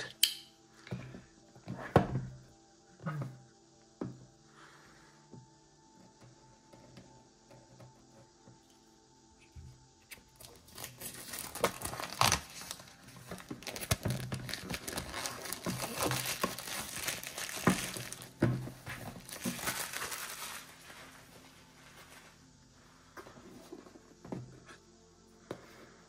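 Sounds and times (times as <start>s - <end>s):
plastic shrink wrap crinkling: 10.4s - 22.4s.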